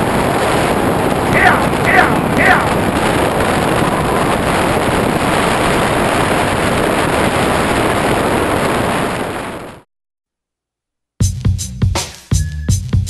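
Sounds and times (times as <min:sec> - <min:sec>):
wind rushing: 0:00.0 - 0:09.8.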